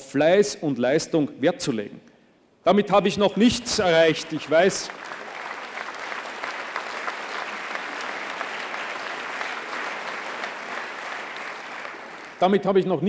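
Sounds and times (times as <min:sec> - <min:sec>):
audience applauding: 0:04.0 - 0:12.6.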